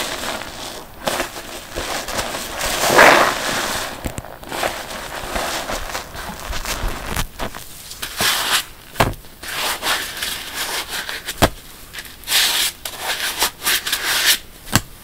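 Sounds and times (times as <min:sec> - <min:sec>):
wet sponge squelching: 0:00.0 - 0:07.2.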